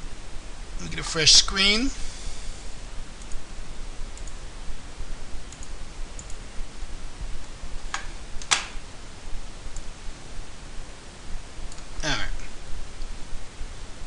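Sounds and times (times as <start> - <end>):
background hiss: 0.0 - 14.0
computer mouse clicks: 3.2 - 3.4, 4.2 - 4.4, 5.5 - 6.4.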